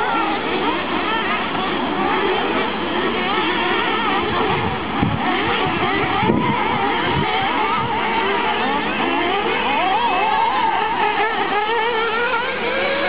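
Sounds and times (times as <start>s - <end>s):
small nitro engines revving: 0.0s - 13.0s.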